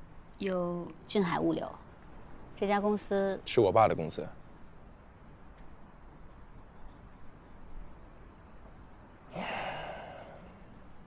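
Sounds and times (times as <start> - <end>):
faint background hiss: 0.0 - 11.0
man sighing: 9.3 - 10.6.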